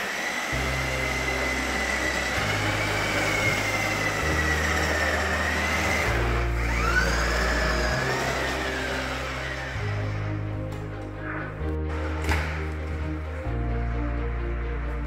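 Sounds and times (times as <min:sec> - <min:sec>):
toy car motor whining: 0:00.0 - 0:10.2
background music with bass line: 0:00.6 - 0:15.0.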